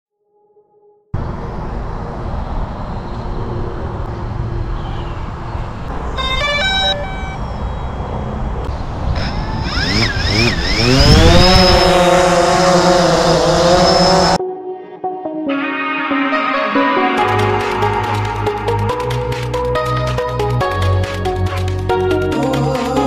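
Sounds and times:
low wind rumble: 1.2 - 6.2, 7.4 - 14.4
drone propellers whining: 1.2 - 14.4.

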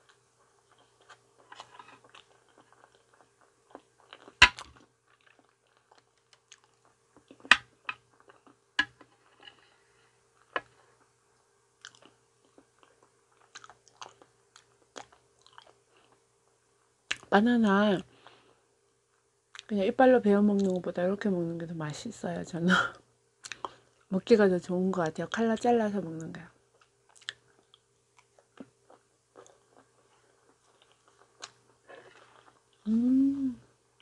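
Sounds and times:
chewing soft banana: 0.0 - 9.4, 10.3 - 16.3, 23.4 - 24.2, 26.2 - 32.9.

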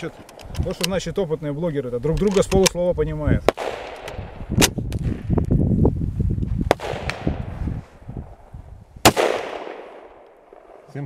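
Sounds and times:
loud rifle shot with echo: 3.5 - 4.8, 6.7 - 7.5, 9.0 - 10.9.

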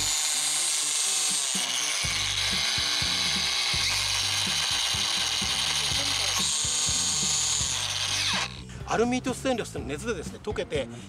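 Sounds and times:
angle grinder whining: 0.0 - 8.7
background music: 0.0 - 11.0.

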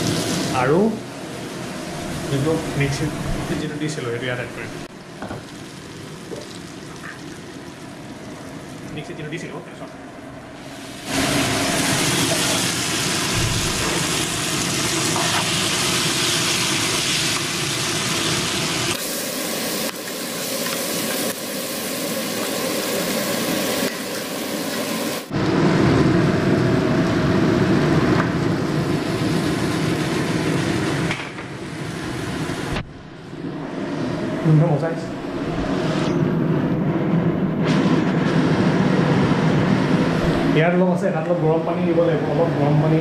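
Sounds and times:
paste frying in hot oil: 0.0 - 9.7, 10.6 - 32.7.

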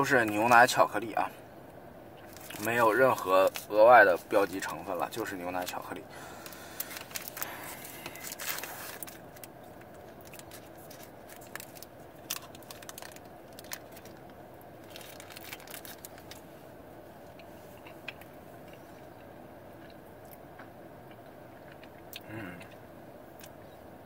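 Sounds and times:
faint steady hum: 0.0 - 24.0
wrapper rustling and clicks: 2.2 - 3.7, 6.4 - 16.4
wrapper crinkling and tearing: 2.2 - 3.8, 5.6 - 16.4.

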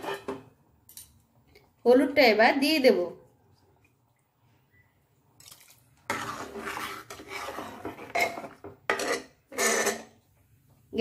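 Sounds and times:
metal ladle scraping a pot: 0.0 - 0.4, 6.0 - 10.2.

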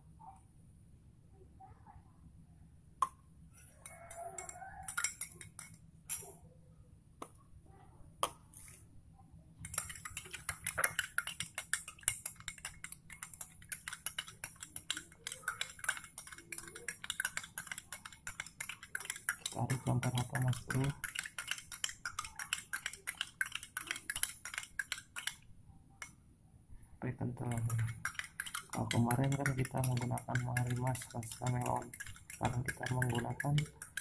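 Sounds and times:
spoon and plastic bottle tapping: 3.9 - 6.3, 9.6 - 25.4, 27.2 - 34.0
teaspoon clinking against glass: 3.9 - 6.3, 9.7 - 25.4, 27.4 - 34.0.

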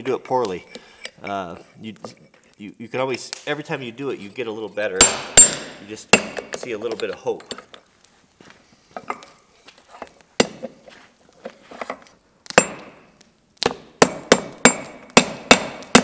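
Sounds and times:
hammer striking hot metal on anvil: 5.0 - 6.7, 12.5 - 13.0, 13.6 - 16.0.

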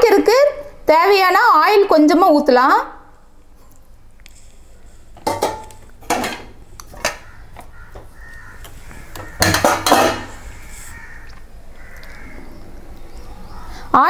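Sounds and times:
crows cawing: 7.0 - 12.8, 13.4 - 13.9.

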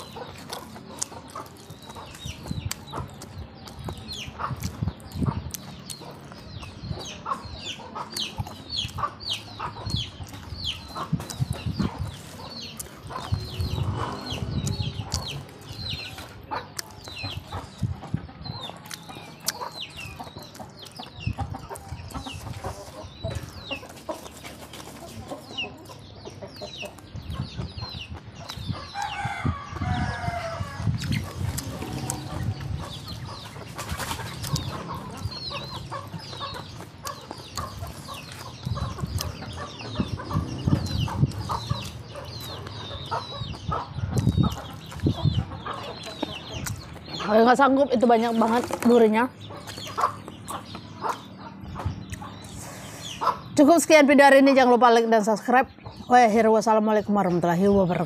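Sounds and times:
close-up chewing: 0.0 - 6.8, 10.1 - 17.9, 30.6 - 47.2
chickens clucking: 0.0 - 58.0.

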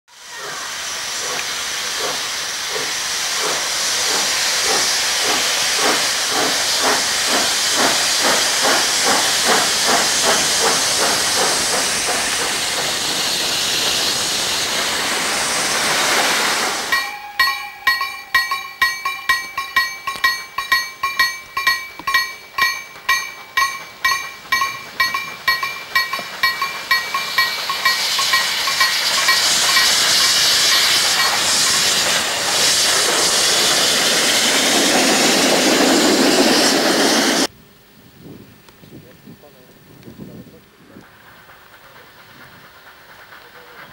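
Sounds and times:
steam hissing: 0.1 - 37.5, 40.8 - 43.9
locomotive exhaust beats: 0.5 - 37.4
steady ringing tones: 16.9 - 30.0.

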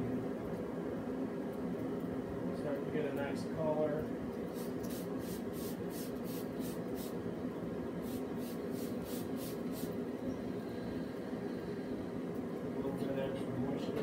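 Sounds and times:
spray bottle squirts: 4.5 - 7.1, 8.0 - 9.9.

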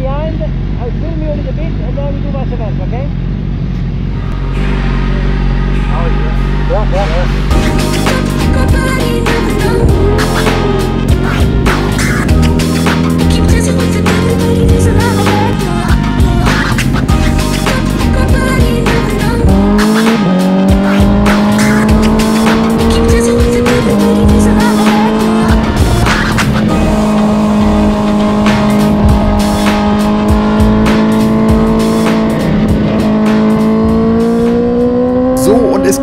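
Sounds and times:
motorcycle engine at high revs: 0.0 - 36.0
wind rushing: 19.4 - 34.8.

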